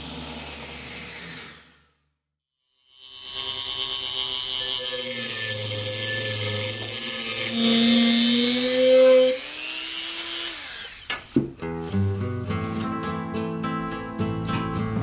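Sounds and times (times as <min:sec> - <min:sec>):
rotary tool sanding steel: 0:02.8 - 0:11.1.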